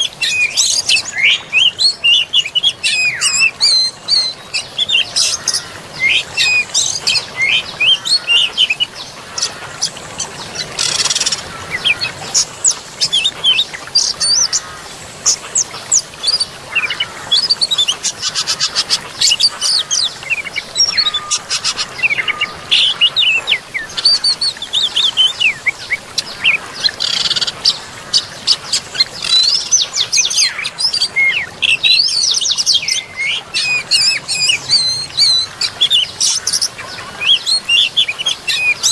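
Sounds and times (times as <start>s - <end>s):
birds chirping and trilling: 0.0s - 38.9s
running water: 0.0s - 38.9s.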